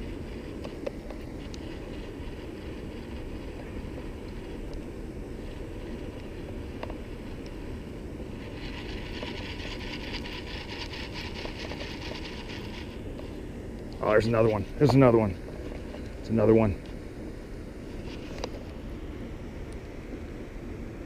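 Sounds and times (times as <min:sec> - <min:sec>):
fishing reel ticking whir: 0:00.0 - 0:13.0
steady low rumble: 0:00.0 - 0:21.0.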